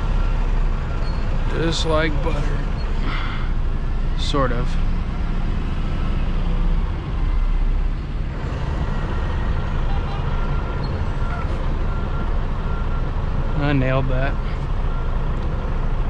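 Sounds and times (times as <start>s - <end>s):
faint reversing beeper: 0.0s - 4.8s, 8.6s - 15.1s
diesel truck engine running: 0.0s - 16.0s.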